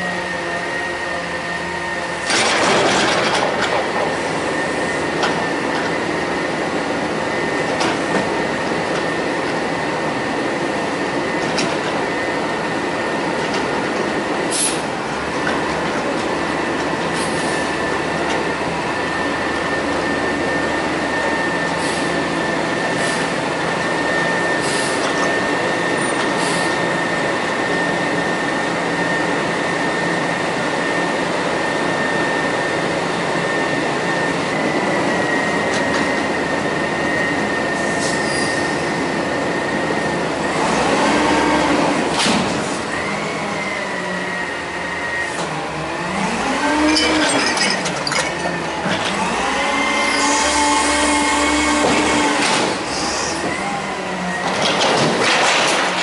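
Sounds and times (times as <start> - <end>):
garbage truck engine and hydraulics: 0.0 - 56.0
dumpster set down clatter: 54.5 - 56.0.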